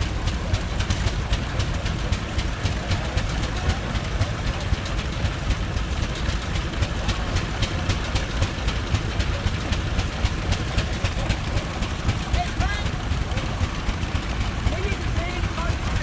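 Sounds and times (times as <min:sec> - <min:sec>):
steel wheels rolling: 0:00.0 - 0:16.0
tractor engine exhaust beat: 0:00.0 - 0:16.0.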